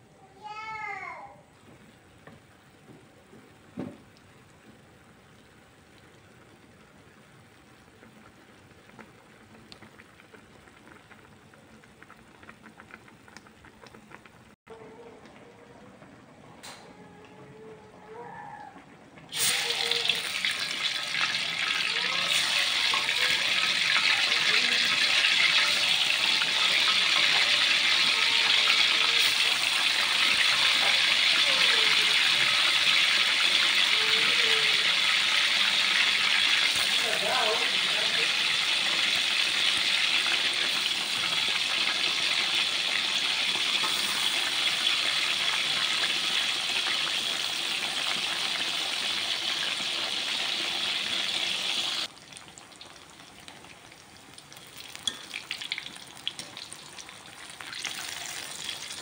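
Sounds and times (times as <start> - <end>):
faint pan simmering: 1.4 - 59.0
food sizzling in hot oil: 19.3 - 59.0.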